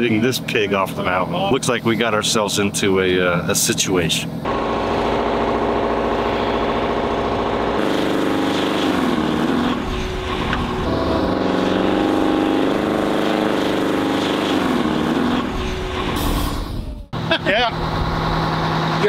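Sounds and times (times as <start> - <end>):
diesel truck engine revving: 4.4 - 19.0.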